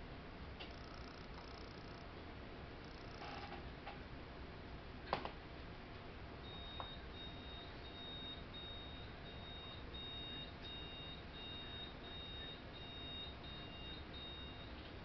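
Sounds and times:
high-pitched alarm beeps: 6.4 - 14.8
lower alarm beep: 6.4 - 14.8.

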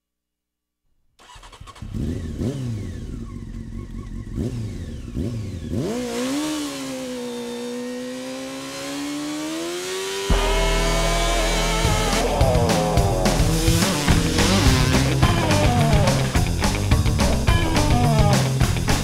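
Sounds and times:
motorcycle engine revving: 1.2 - 19.0
music track: 10.3 - 19.0.

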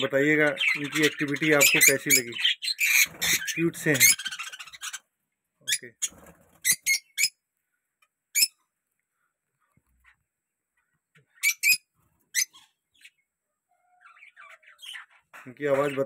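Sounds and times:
lovebirds chirping shrilly: 0.0 - 7.4, 8.3 - 8.6, 11.3 - 16.0.

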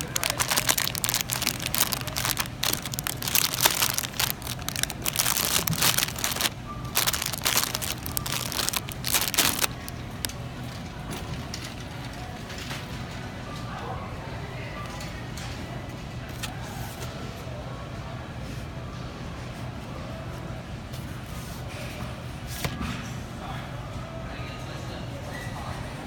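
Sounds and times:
plastic bags crinkling: 0.0 - 10.3.

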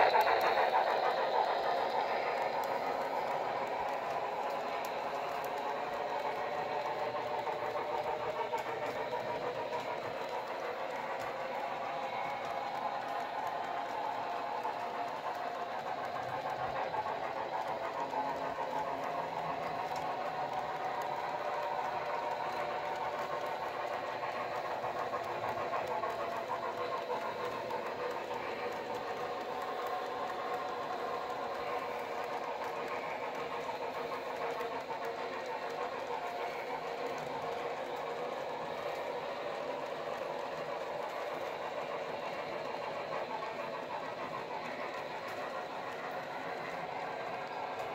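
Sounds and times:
model train whirring: 0.0 - 47.9
wheels clicking on rails: 0.0 - 47.9.

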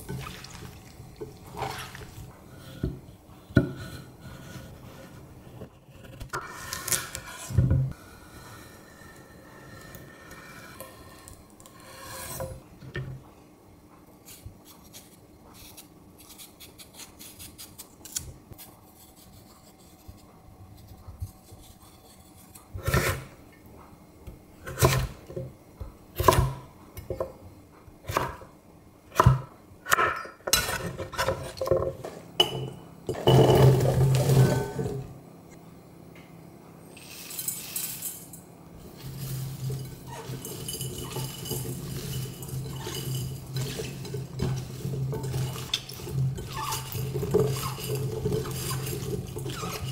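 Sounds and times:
knife slicing and scraping cucumber: 14.2 - 23.3.

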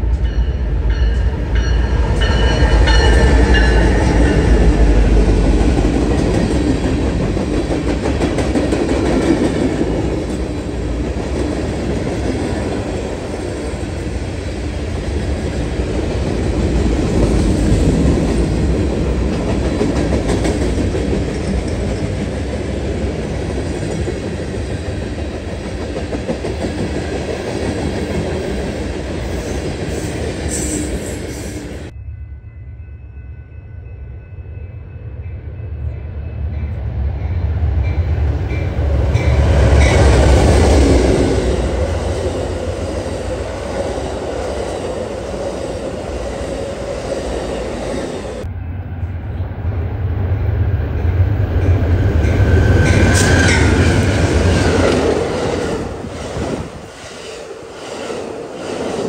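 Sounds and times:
diesel locomotive engine rumble: 0.0 - 32.0, 33.8 - 58.8
train wheels clickety-clack: 2.1 - 12.9, 15.9 - 31.4, 51.5 - 57.2.

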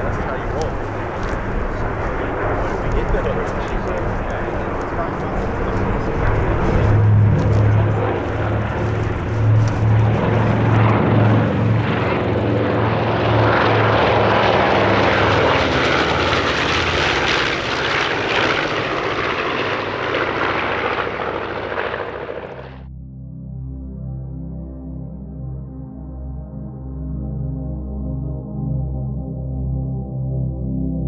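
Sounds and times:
propeller aircraft engines droning: 0.0 - 22.9.

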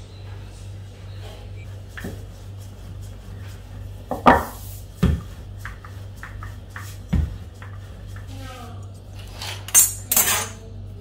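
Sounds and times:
steady low hum: 0.0 - 11.0
rolling pin tapping: 4.1 - 8.3.

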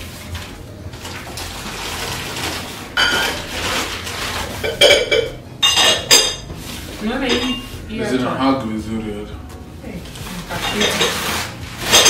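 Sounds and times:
wrapping crinkling: 0.0 - 5.2, 10.1 - 12.0
glass bowls clinking: 1.8 - 6.6, 7.2 - 7.9, 10.4 - 12.0.

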